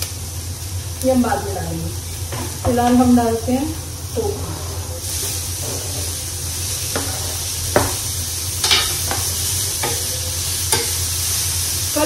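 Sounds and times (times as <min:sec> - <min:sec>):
tofu sizzling in a pan: 0:05.0 - 0:12.0
spatula knocking and scraping pan: 0:06.9 - 0:11.0.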